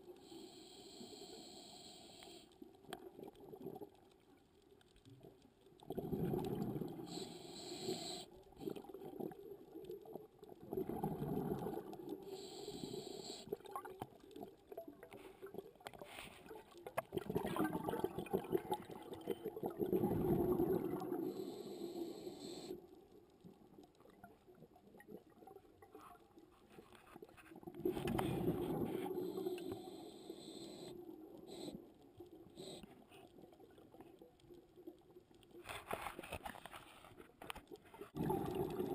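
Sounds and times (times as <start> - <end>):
diver exhaling bubbles underwater: 5.9 - 7.0, 10.6 - 11.9, 17.1 - 21.4, 38.2 - 38.9.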